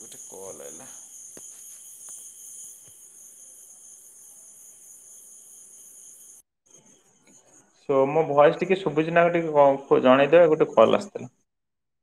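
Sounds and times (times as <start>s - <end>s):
insects chirring: 0.0s - 7.8s.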